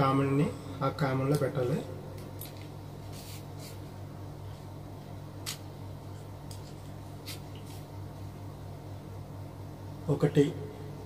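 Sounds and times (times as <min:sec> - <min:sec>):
steady low hum: 0:00.0 - 0:11.0.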